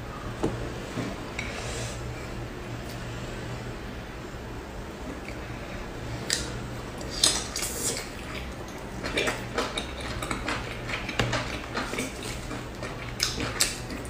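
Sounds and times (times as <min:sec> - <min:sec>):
low steady hum: 0:00.0 - 0:14.0
chewing with mouth clicks: 0:06.2 - 0:14.0.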